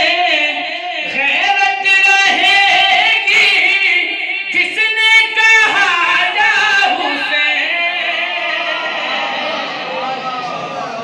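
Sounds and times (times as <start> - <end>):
man singing unaccompanied: 0.0 - 9.1.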